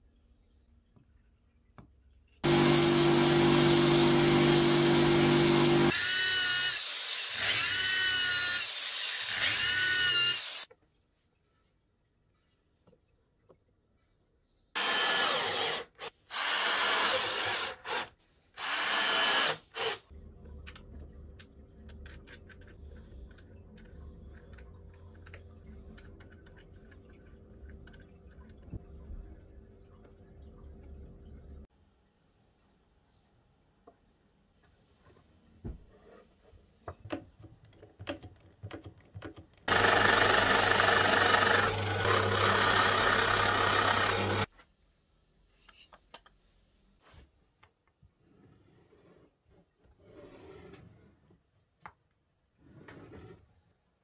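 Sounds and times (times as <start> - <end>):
cordless drill driving screws: 14.8 - 20.1, 39.7 - 44.5
faint clicks and handling noise: 20.4 - 28.8.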